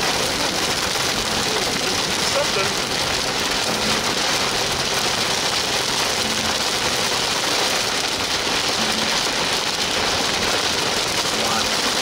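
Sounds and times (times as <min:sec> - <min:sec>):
heavy rain hitting a car: 0:00.0 - 0:12.0.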